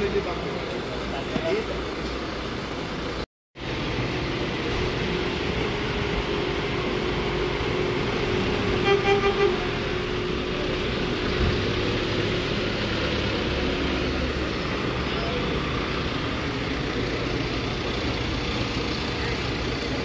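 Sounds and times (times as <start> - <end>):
street traffic: 0.0 - 20.0
vehicle horn toots: 8.8 - 9.8.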